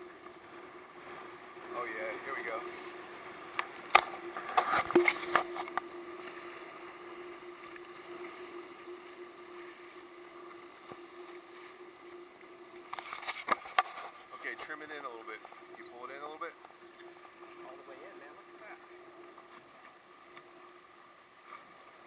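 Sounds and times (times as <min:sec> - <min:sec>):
constant hum: 0:00.0 - 0:22.0
water splashing against hull: 0:00.0 - 0:22.0.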